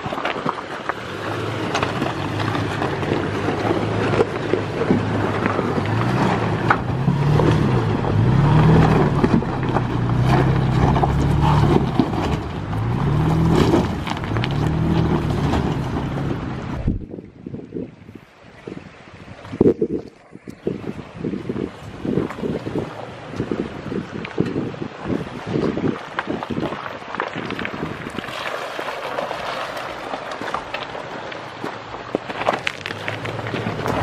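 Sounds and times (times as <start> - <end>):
pickup truck engine pulling: 0.0 - 17.0, 27.4 - 34.0
tyres crunching over stones: 0.0 - 17.0, 25.9 - 34.0
wind buffeting microphone: 0.0 - 34.0.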